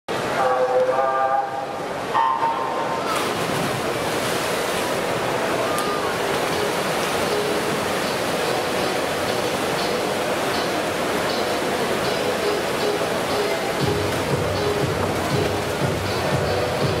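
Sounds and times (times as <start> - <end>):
swimmers splashing: 0.2 - 17.0
spectators cheering: 5.5 - 6.3.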